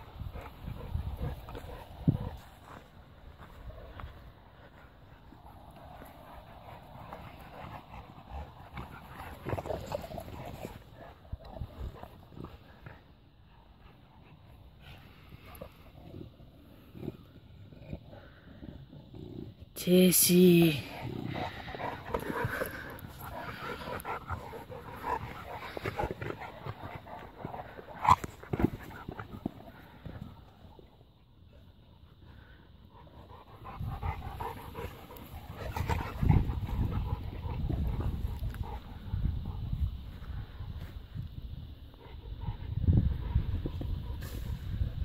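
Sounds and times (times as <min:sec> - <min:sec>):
dogs playing and scuffling: 0:00.0 - 0:19.8, 0:20.9 - 0:44.6
dogs vocalizing: 0:20.9 - 0:30.6.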